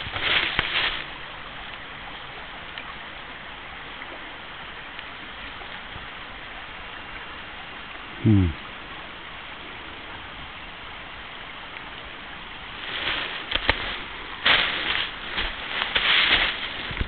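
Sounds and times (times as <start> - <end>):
footsteps on log footbridge: 0.0 - 1.1, 12.8 - 17.0.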